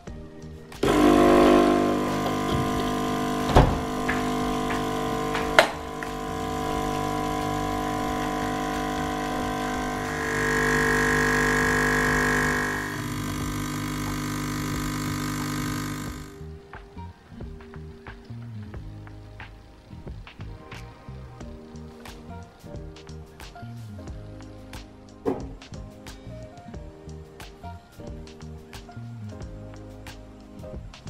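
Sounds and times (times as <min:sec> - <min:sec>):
espresso machine pump buzzing hum: 0:00.6 - 0:18.0
espresso pouring into mug: 0:00.8 - 0:16.4
higher tone: 0:00.8 - 0:16.6.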